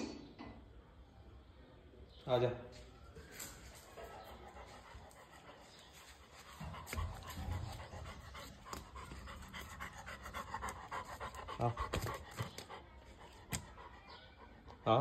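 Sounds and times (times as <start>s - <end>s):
dog panting: 3.5s - 15.0s.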